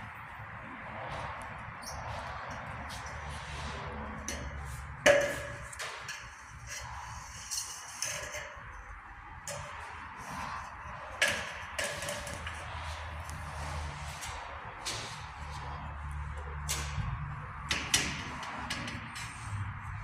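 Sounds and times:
steel profile clanking and ringing: 4.2s - 8.8s.

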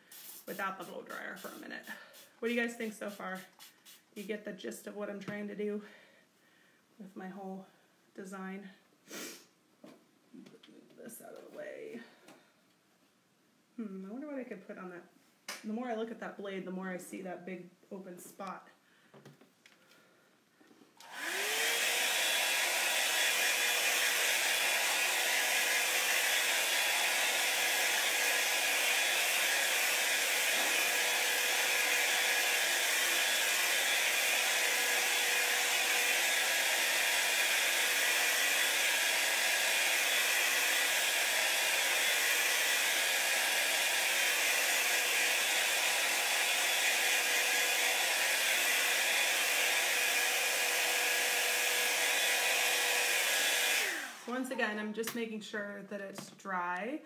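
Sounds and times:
blow dryer running: 21.0s - 54.8s.

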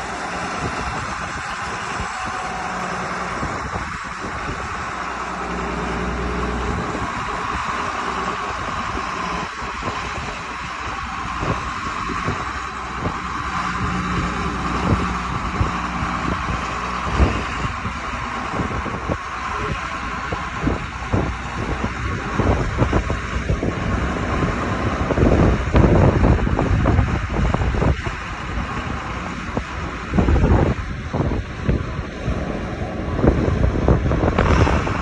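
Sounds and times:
tractor diesel engine running: 0.0s - 35.0s
wind buffeting microphone: 0.0s - 35.0s.

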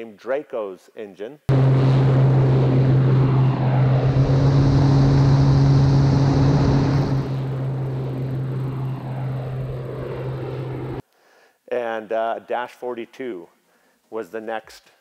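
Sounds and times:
propeller aircraft drone: 1.5s - 11.0s
rushing noise: 1.5s - 11.0s.

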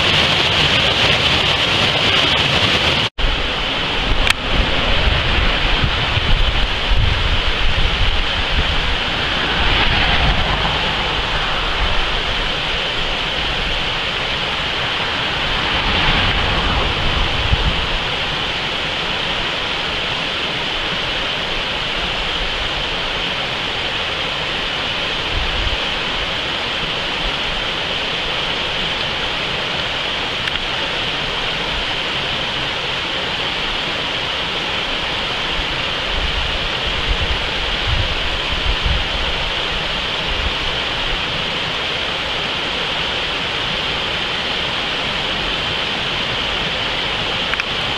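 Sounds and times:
water rushing through rapids: 0.0s - 47.9s
wind buffeting microphone: 3.2s - 19.6s, 36.1s - 40.8s.

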